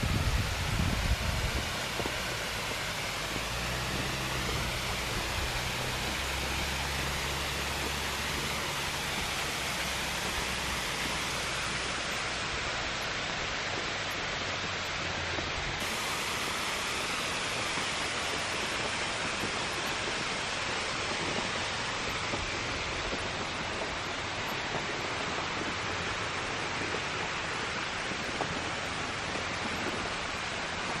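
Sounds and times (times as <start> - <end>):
water rushing over rocks: 0.0 - 31.0.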